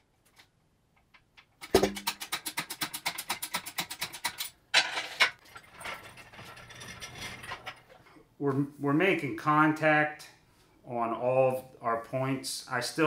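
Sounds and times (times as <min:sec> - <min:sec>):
hoist clicking rapidly: 0:01.6 - 0:04.4
metal clunk: 0:01.7 - 0:02.1
chain and metal rattling: 0:04.3 - 0:07.9.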